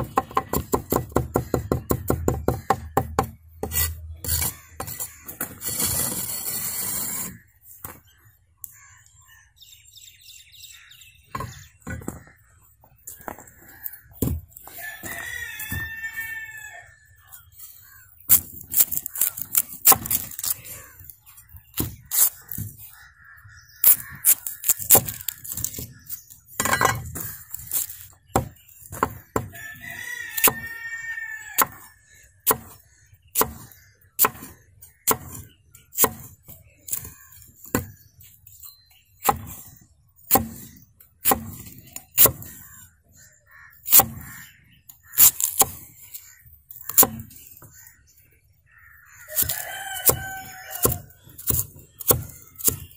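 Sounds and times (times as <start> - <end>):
knife chopping on wooden board: 0.0 - 3.9, 32.5 - 32.8, 33.4 - 34.5, 35.1 - 35.4, 36.0 - 36.3, 40.3 - 42.5, 46.9 - 47.3, 49.4 - 52.9
rooster crowing: 14.8 - 16.9, 29.5 - 31.7, 49.3 - 51.1.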